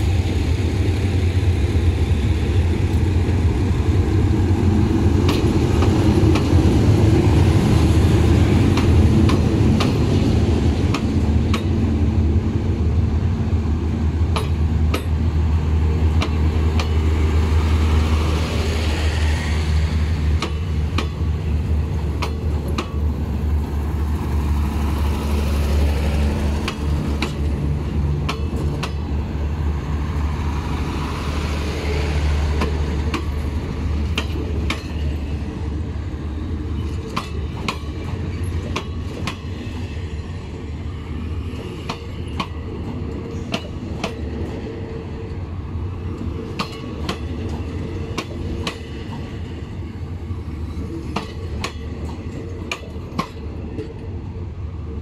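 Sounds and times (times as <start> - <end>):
diesel train engine droning: 0.0 - 55.0
sharp metallic clicks and knocks: 14.3 - 15.2, 26.6 - 27.5, 28.2 - 29.0, 36.8 - 39.4, 51.1 - 54.0.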